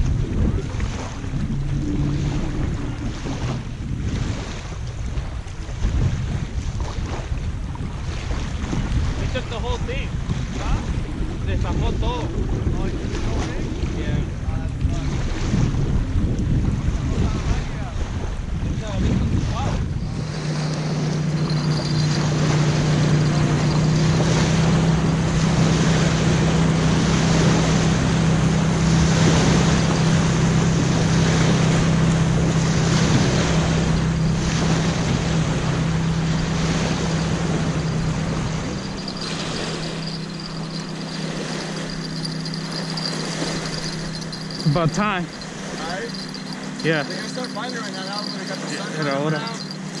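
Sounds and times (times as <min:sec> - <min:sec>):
low engine drone: 0:00.0 - 0:04.2, 0:19.8 - 0:50.0
small waves lapping: 0:00.0 - 0:50.0
wind buffeting microphone: 0:00.0 - 0:50.0.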